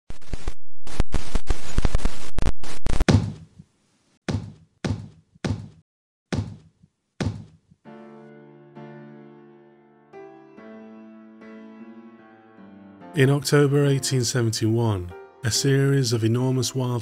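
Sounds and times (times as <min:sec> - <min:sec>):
heavy thuds: 0:04.3 - 0:07.8
soft piano music: 0:07.9 - 0:17.0.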